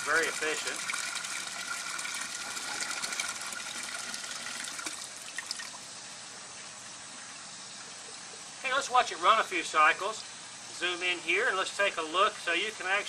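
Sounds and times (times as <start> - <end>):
water rushing through siphon: 0.0 - 8.6.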